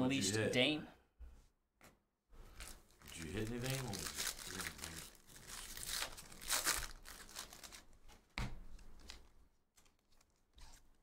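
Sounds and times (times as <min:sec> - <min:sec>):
foil wrapper tearing and crinkling: 0:02.6 - 0:08.0.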